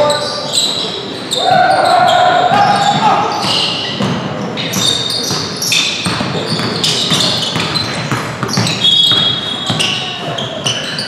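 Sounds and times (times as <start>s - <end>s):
sneaker squeaks: 0.0s - 11.0s
basketball bouncing on hardwood: 2.9s - 10.1s.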